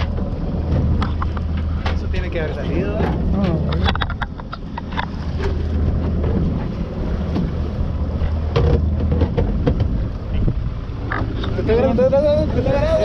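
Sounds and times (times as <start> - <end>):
knocks on boat: 0.0 - 2.2, 5.9 - 11.3
boat engine humming: 0.0 - 13.0
wind buffeting microphone: 0.0 - 13.0.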